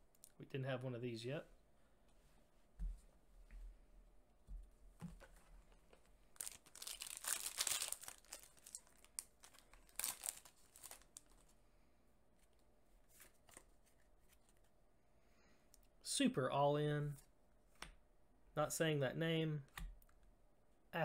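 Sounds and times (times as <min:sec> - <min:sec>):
foil wrapper crinkling and tearing: 0:06.4 - 0:11.5.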